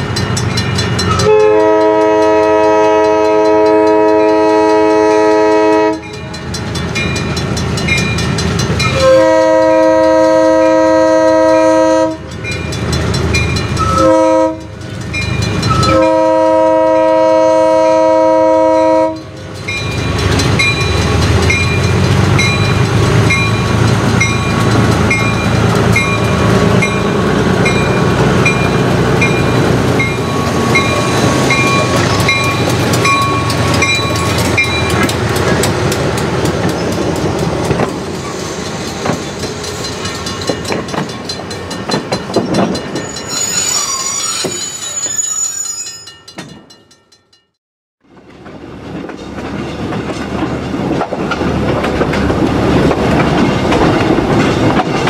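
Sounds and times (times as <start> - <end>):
locomotive diesel engine rumbling: 0.0 - 43.1
crossing bell ringing: 0.0 - 47.6
train wheels over rail joints: 0.0 - 55.0
locomotive horn blasts: 1.1 - 6.2, 8.9 - 12.3, 13.8 - 14.8, 15.7 - 19.3.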